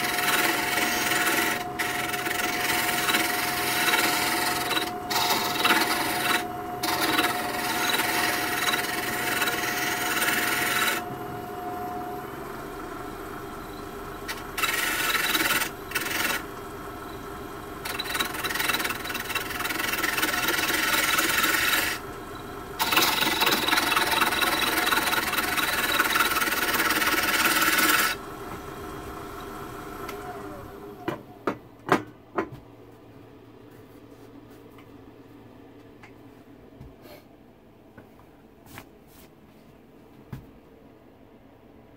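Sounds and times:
lathe tool cutting wood: 0:00.0 - 0:31.0
wood lathe running: 0:00.0 - 0:31.0.

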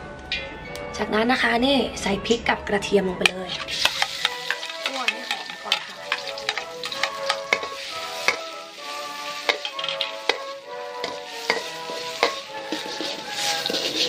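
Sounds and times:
background music: 0:00.0 - 0:14.0
chillies and garlic sizzling: 0:03.2 - 0:14.0
spatula scraping a wok: 0:03.2 - 0:14.0.

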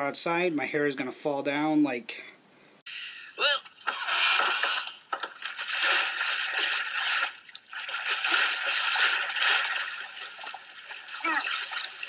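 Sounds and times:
pond water splashing and sloshing: 0:04.2 - 0:12.0.

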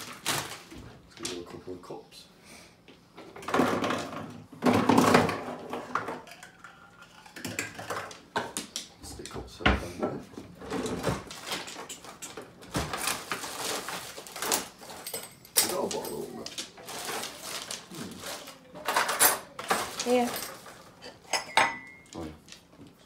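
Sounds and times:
cups and packaging clattering: 0:03.2 - 0:08.9, 0:10.0 - 0:23.0
cutlery drawer opening: 0:10.6 - 0:13.5.

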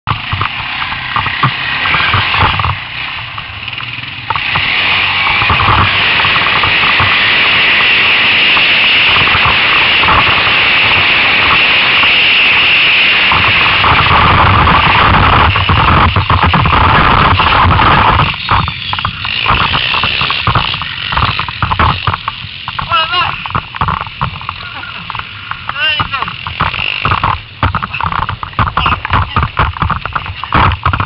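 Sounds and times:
quad engine: 0:00.0 - 0:31.0
knocks: 0:15.6 - 0:31.0.

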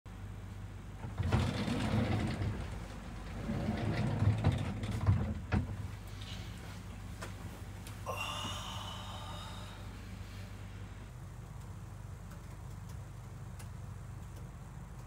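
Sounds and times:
low hum: 0:00.1 - 0:15.0
sliding door rumbling and clicking: 0:00.9 - 0:06.5.

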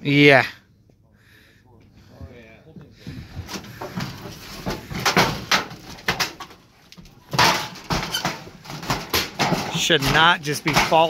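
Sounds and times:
panels rattling and scraping: 0:03.0 - 0:11.0
loud clatter: 0:07.3 - 0:11.0.

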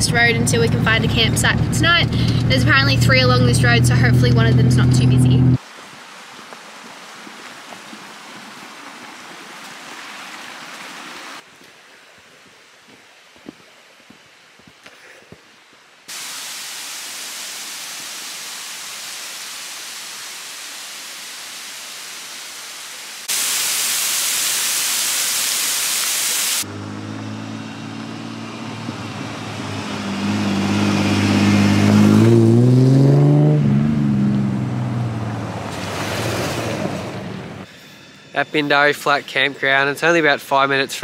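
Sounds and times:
car engine approaching: 0:00.0 - 0:05.6, 0:26.6 - 0:37.7
waterfall rushing: 0:05.6 - 0:11.5, 0:16.1 - 0:26.9.

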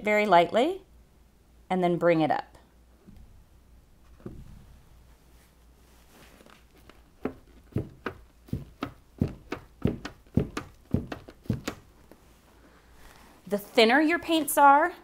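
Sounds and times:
footsteps on hard floor: 0:06.2 - 0:12.2.

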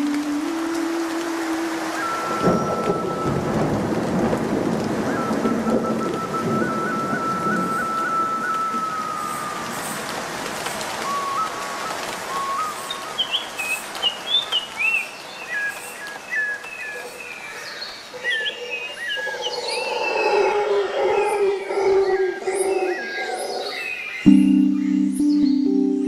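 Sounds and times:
steady hiss: 0:00.0 - 0:16.2
birds chirping and whistling: 0:01.9 - 0:03.7, 0:04.9 - 0:10.1
sustained musical tones: 0:24.3 - 0:26.0.

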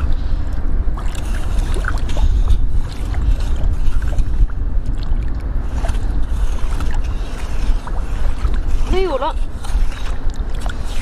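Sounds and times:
wind buffeting microphone: 0:00.0 - 0:11.0.

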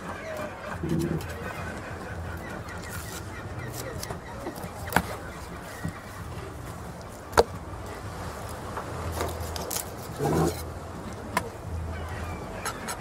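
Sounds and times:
market background hum: 0:00.0 - 0:13.0.

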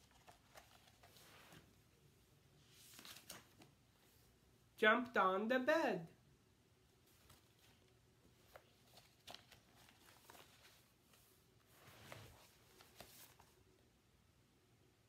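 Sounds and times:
book pages rustling: 0:00.0 - 0:01.9, 0:02.5 - 0:04.2, 0:07.0 - 0:13.7.

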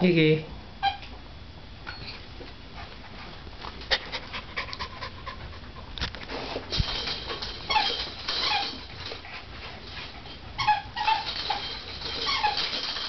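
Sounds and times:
puppies yipping and whining: 0:06.9 - 0:09.2, 0:10.6 - 0:13.0.

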